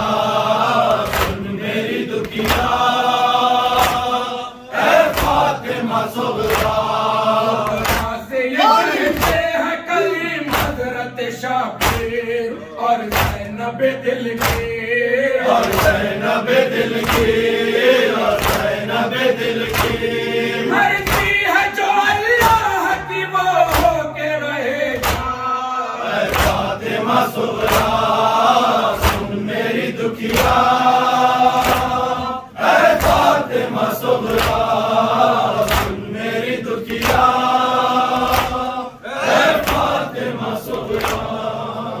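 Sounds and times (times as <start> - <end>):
lead reciter chanting: 0.0 - 42.0
men chanting in unison: 0.0 - 42.0
rhythmic chest-beating slaps: 0.0 - 42.0.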